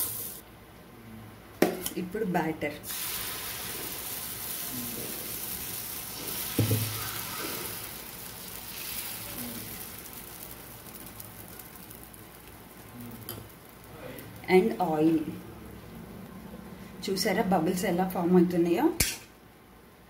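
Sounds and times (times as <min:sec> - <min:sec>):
batter sizzling on hot pan: 0:00.0 - 0:00.4, 0:02.8 - 0:16.7.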